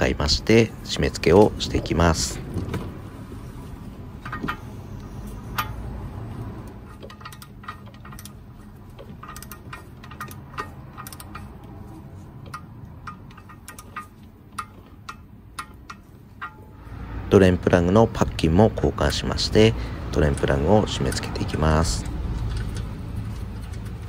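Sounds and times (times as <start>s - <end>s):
torque wrench ratcheting: 6.7s - 16.7s.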